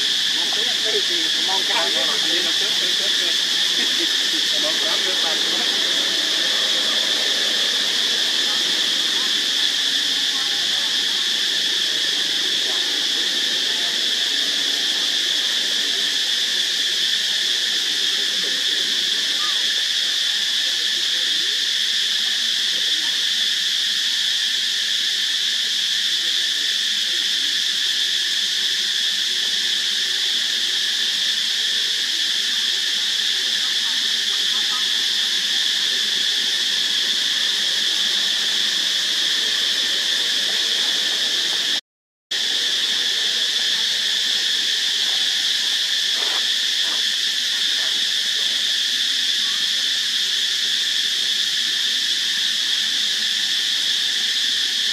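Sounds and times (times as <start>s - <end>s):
insect chorus drone: 0.0s - 54.9s.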